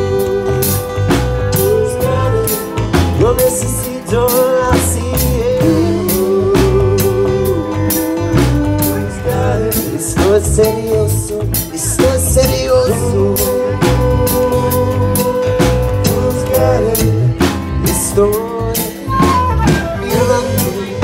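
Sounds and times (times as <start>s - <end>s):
drum kit beat: 0.0s - 21.0s
flute melody: 0.0s - 21.0s
guitar: 0.0s - 21.0s.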